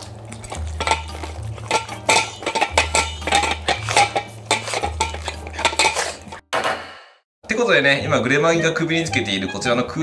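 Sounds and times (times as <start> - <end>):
dogs lapping water: 0.0 - 6.3
bass line of background music: 0.0 - 6.4, 7.8 - 10.0
bowls clinking: 0.0 - 6.4.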